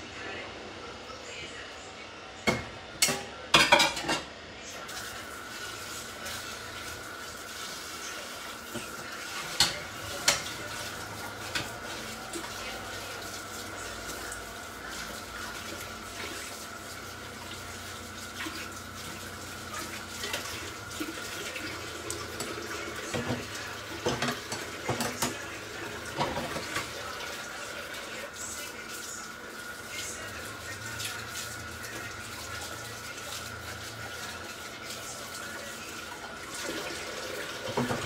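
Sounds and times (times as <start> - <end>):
dishes and utensils clinking: 2.5 - 4.3, 22.4 - 25.5.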